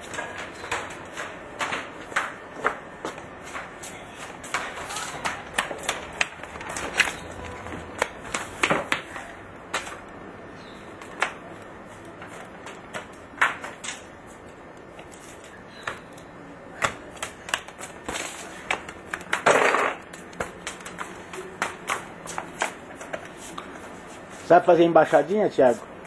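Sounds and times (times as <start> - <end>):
rubber ball bouncing on pavement: 4.4 - 10.0, 15.8 - 23.7.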